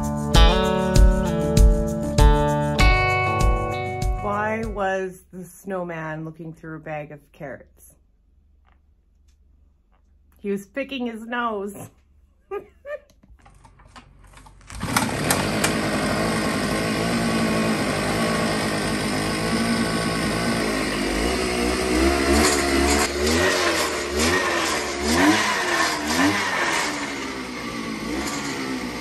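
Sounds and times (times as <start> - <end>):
ice auger engine revving: 14.6 - 29.0.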